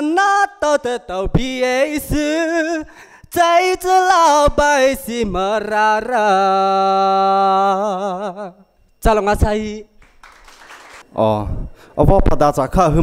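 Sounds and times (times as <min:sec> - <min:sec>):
man singing unaccompanied: 0:00.0 - 0:10.0
short breaths: 0:02.9 - 0:03.3, 0:11.6 - 0:12.0.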